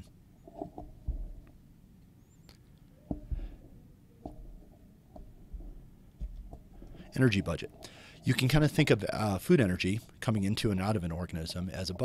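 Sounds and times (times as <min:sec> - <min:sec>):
faint low background noise: 0:00.0 - 0:12.0
soft low thumps: 0:00.5 - 0:01.7, 0:03.0 - 0:09.5.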